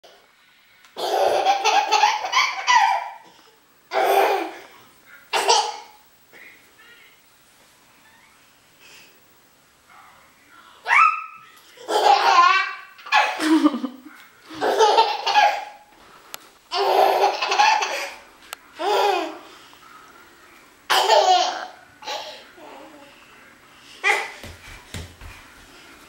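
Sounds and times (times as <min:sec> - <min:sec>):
hearty laughter: 0:13.3 - 0:15.1.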